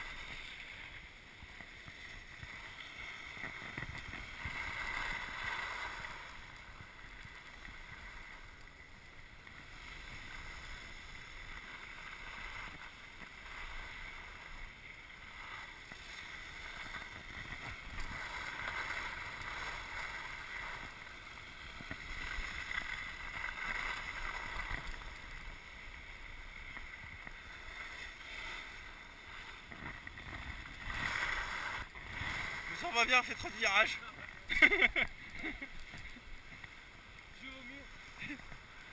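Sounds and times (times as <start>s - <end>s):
skis scraping on snow: 0.0s - 38.9s.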